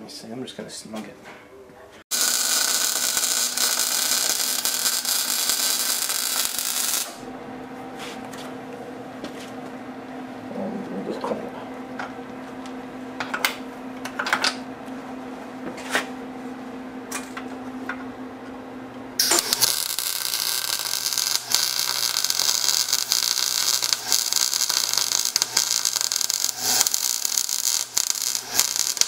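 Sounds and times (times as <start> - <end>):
welding arc crackling and hissing: 2.1 - 7.3, 19.2 - 29.0
steady low hum: 2.2 - 29.0.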